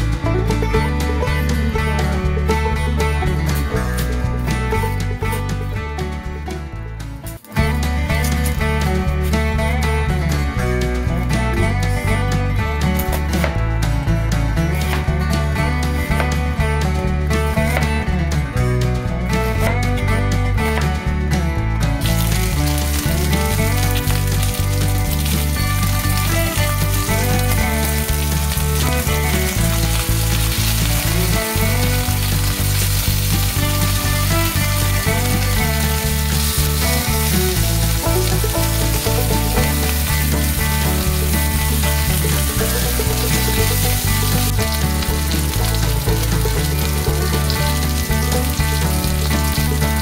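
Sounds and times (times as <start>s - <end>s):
background music: 0.0s - 50.0s
meat sizzling in a wok: 22.0s - 50.0s.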